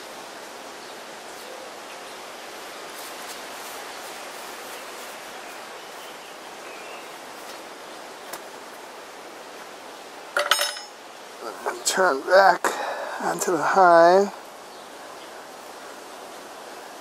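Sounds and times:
steady outdoor hiss: 0.0s - 17.0s
gloves and veil rustling: 2.8s - 8.8s.

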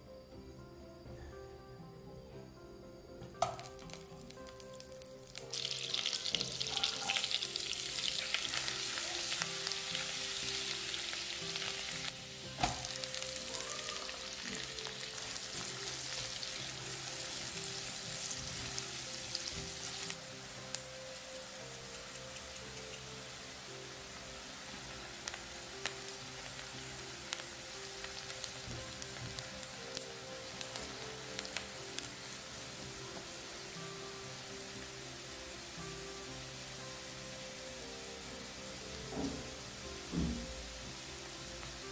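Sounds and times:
knock on pan: 3.4s - 3.7s, 12.6s - 12.9s, 39.1s - 39.5s, 40.1s - 40.5s
food sizzling in a pan: 3.4s - 41.9s.

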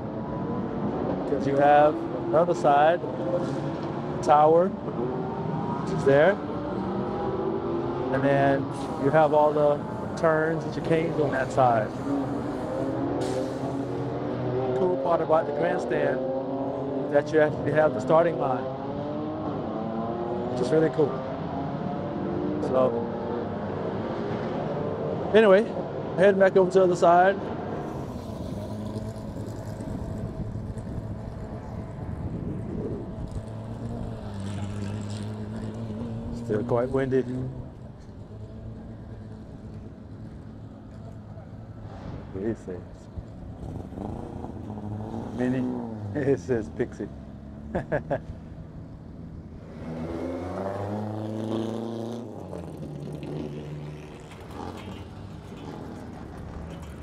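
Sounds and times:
car engine passing by: 27.5s - 42.8s, 49.5s - 57.0s
wind buffeting microphone: 29.7s - 33.5s.

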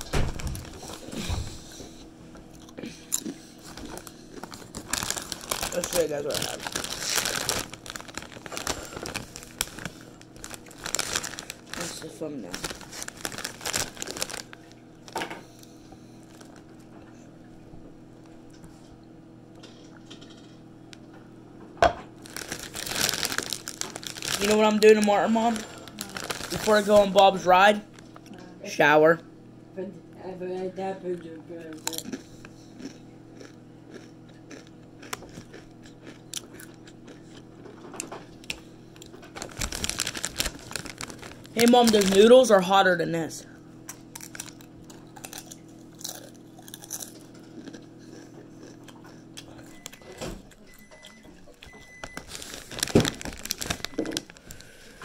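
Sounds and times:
chip bag crinkling: 0.0s - 1.5s, 2.6s - 15.6s, 16.2s - 16.8s, 22.2s - 28.3s, 31.8s - 50.0s, 52.0s - 54.9s
low steady hum: 0.0s - 55.0s.

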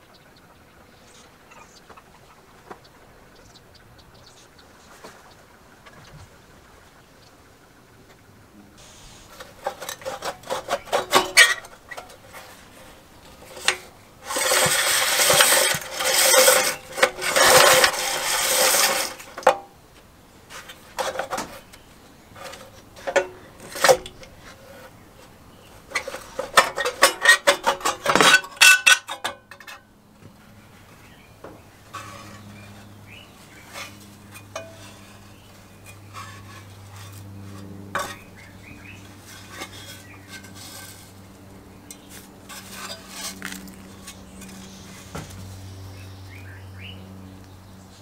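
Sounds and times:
dense scraping noise: 8.8s - 19.5s, 31.9s - 41.3s, 41.9s - 45.7s.

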